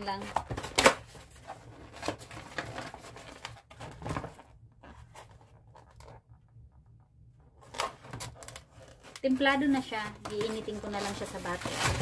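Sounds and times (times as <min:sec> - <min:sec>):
sharp plastic crackles: 0:00.0 - 0:04.5, 0:07.6 - 0:12.0
plastic and cardboard crinkling: 0:00.0 - 0:06.8, 0:07.4 - 0:12.0.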